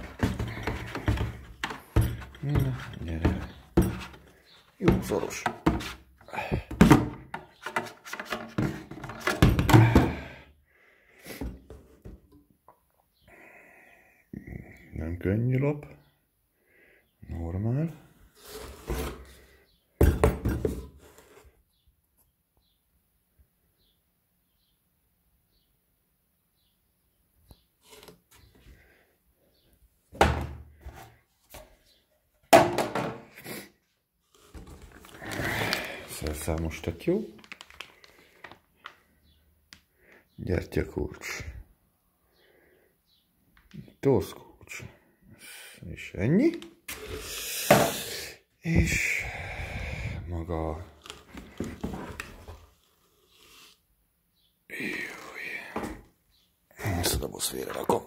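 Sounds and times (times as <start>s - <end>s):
cardboard scraping and rustling: 0.0s - 6.0s, 18.4s - 19.4s, 50.9s - 53.5s
cardboard rustling: 0.0s - 10.0s, 34.3s - 39.0s, 50.8s - 53.5s
knocks and thumps: 0.0s - 10.3s, 20.0s - 21.0s, 30.2s - 31.0s, 32.5s - 33.3s
cardboard box thumps: 30.2s - 30.6s.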